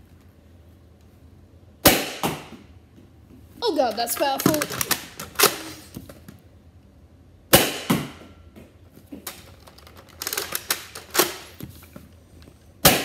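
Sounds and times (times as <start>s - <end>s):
foam blaster shots: 1.8s - 2.5s, 7.5s - 8.2s.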